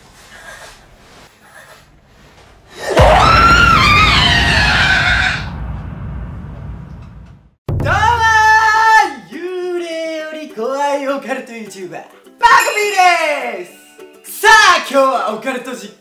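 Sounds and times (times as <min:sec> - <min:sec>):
loud high-pitched scream: 0:03.0 - 0:05.6
deep rumble: 0:03.0 - 0:08.0.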